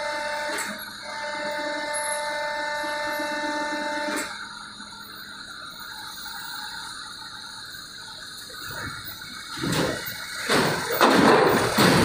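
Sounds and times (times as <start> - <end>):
bus driving: 0.0 - 12.0
steady pitched hum: 0.0 - 12.0
metal ramp plates clattering: 9.6 - 12.0.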